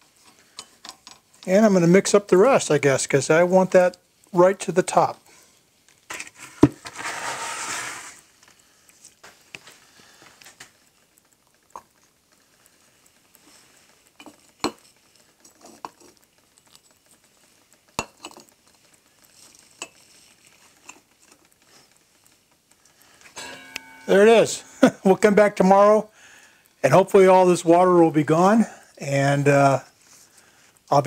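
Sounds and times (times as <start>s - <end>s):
scraping rustle: 5.3s - 10.8s
metal tools clinking: 23.4s - 24.9s.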